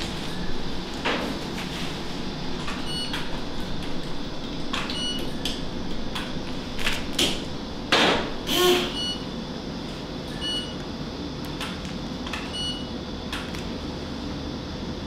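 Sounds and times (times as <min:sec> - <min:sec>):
equipment and ventilation hum: 0:00.0 - 0:15.0.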